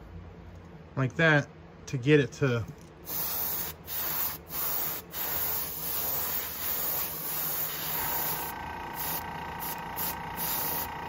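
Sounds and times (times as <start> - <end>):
airbrush spraying hiss: 3.0 - 11.0.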